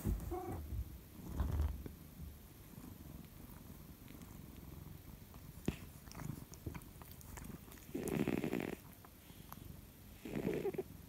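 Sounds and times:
cat snoring: 0:07.8 - 0:09.4, 0:10.2 - 0:11.0.

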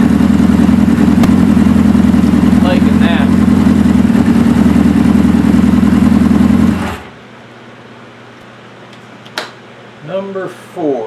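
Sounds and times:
motorcycle engine idling: 0:00.0 - 0:07.0.

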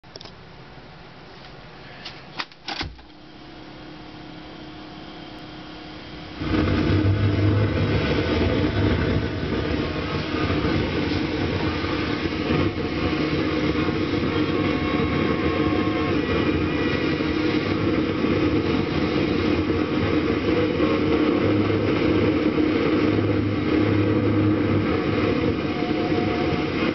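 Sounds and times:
loud dense steady sound: 0:03.0 - 0:26.9.

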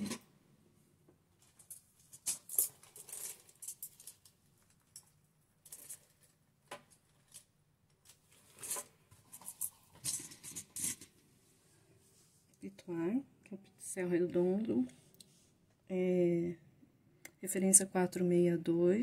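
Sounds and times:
rustling: 0:01.3 - 0:12.5.

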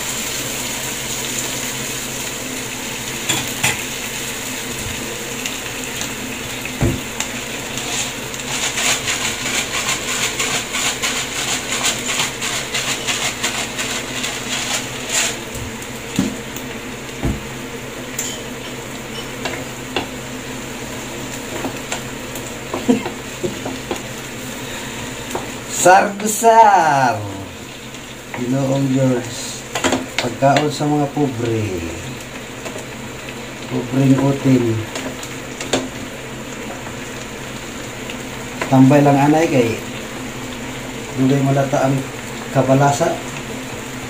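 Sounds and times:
vegetables sizzling in a frying pan: 0:00.0 - 0:44.0
wooden spatula scraping a pan: 0:07.7 - 0:15.6.

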